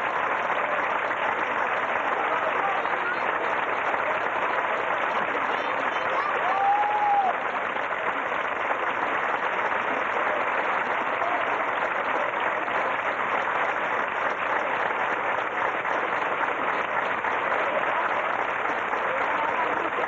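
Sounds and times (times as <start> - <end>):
audience applauding: 0.0 - 20.0.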